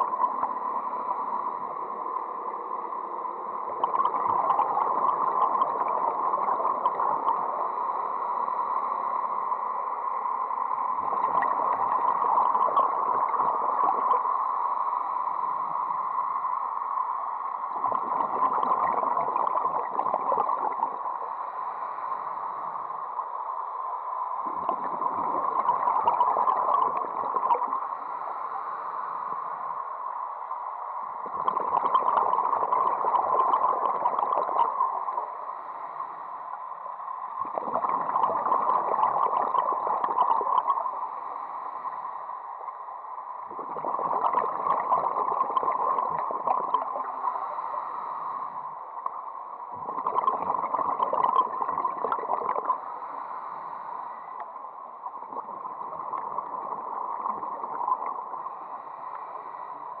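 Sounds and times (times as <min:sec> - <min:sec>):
quiet inhalation through regulator: 0:00.0 - 1:00.0
diver exhaling bubbles underwater: 0:37.4 - 0:40.8, 0:43.5 - 0:47.1, 0:49.7 - 0:52.8.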